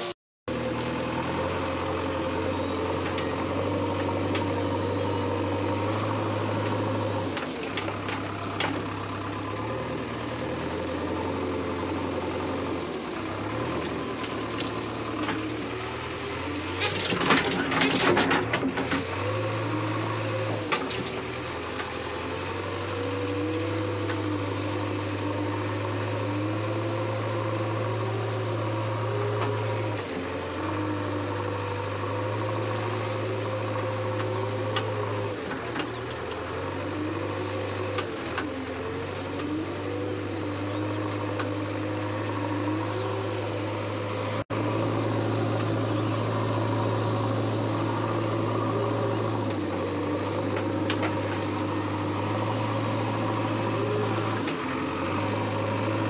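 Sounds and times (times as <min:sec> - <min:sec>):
diesel engine running: 0:00.0 - 0:56.0
hydraulic whine rising and falling: 0:39.6 - 0:56.0.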